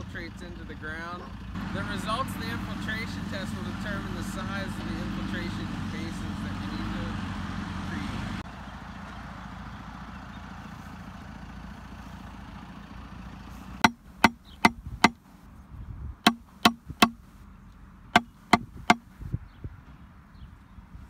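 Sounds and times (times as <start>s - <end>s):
backhoe engine running: 0.0s - 15.6s, 16.3s - 19.1s
hammer striking plastic pipe: 13.8s - 15.2s, 16.3s - 17.2s, 18.2s - 19.1s.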